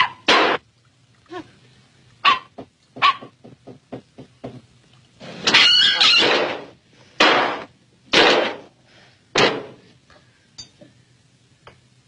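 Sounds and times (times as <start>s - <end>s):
loud sharp whacks: 0.3s - 0.6s, 5.4s - 8.7s, 9.4s - 9.8s.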